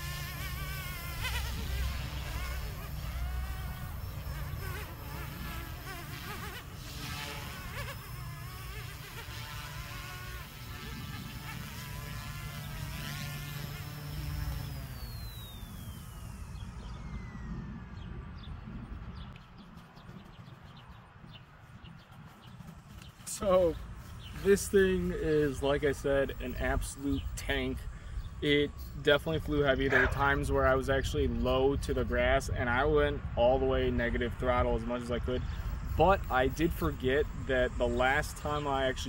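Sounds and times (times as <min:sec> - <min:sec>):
rc helicopter rotor whine: 0:00.0 - 0:20.3.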